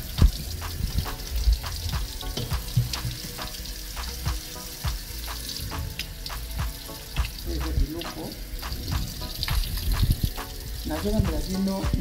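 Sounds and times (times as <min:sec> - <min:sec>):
tap water splashing into sink: 0:00.0 - 0:12.0.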